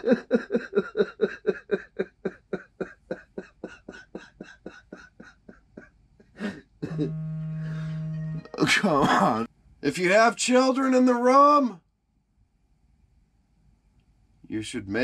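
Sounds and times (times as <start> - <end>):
man laughing: 0.0 - 7.9, 8.6 - 9.5
steady buzzing tone: 6.8 - 8.7.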